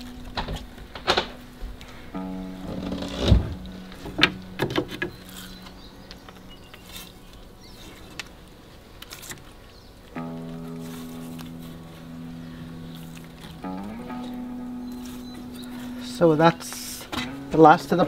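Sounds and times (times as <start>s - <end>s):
background music: 0.0s - 18.0s.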